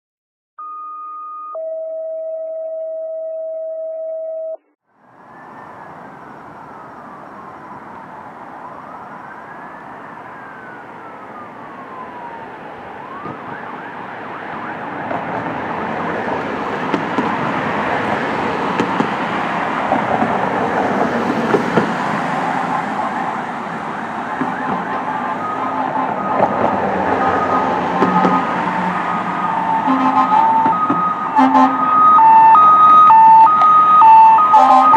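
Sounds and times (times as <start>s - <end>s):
electronic tone: 0.6s - 4.7s
engine and road noise: 4.7s - 34.9s
fire truck siren wailing: 5.1s - 34.9s.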